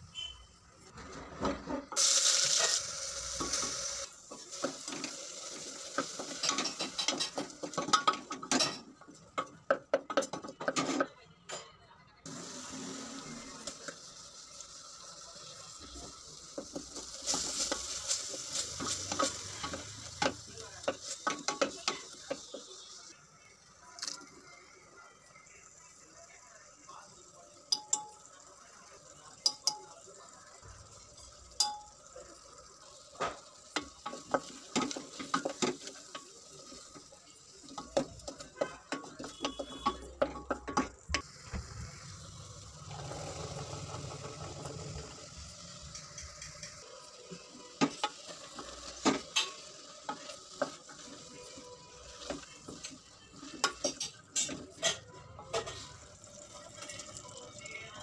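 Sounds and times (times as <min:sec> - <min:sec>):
green beans sizzling: 0:00.0 - 0:10.6, 0:12.2 - 0:58.0
spoons scraping metal pot: 0:37.9 - 0:40.9.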